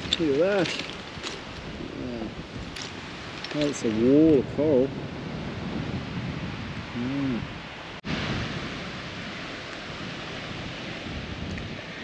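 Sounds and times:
wind: 0:00.0 - 0:12.0
person humming: 0:07.0 - 0:07.5.

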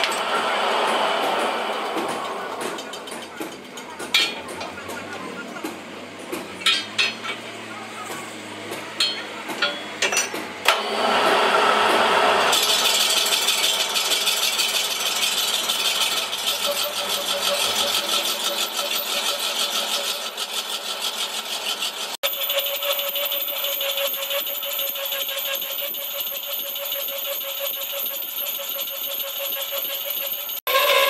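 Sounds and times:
lathe tool chattering on metal: 0:11.9 - 0:31.0
sharp metal clinks: 0:22.3 - 0:30.8.

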